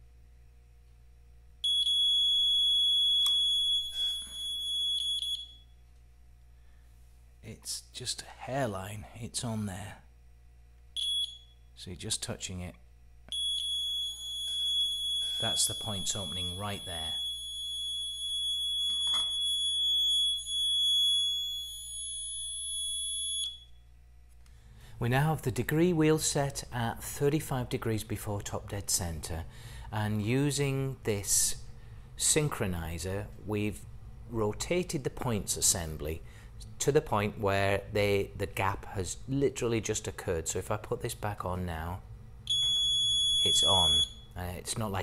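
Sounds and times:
steady high-pitched beep: 1.7 - 5.7, 13.4 - 23.7, 42.5 - 44.2
high-pitched beep: 42.5 - 44.2.

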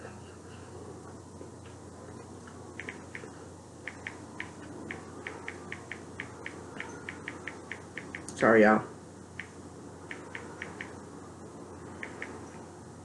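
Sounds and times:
fingers tapping on phone screen: 2.8 - 8.4, 9.4 - 11.0, 12.0 - 12.4.

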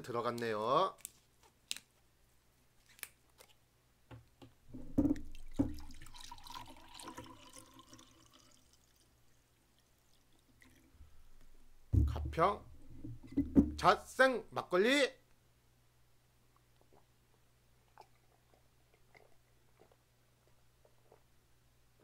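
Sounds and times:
liquid pouring into a glass: 5.1 - 11.0.

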